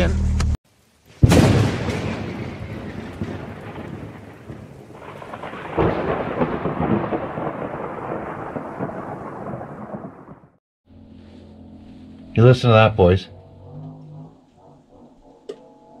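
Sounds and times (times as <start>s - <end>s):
rain falling: 0.7s - 10.6s
rolling thunderclap: 1.2s - 10.6s.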